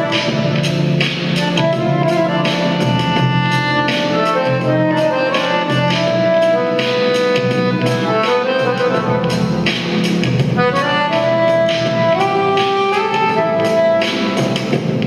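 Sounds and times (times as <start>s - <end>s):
piano accordion playing a tune: 0.0s - 15.0s.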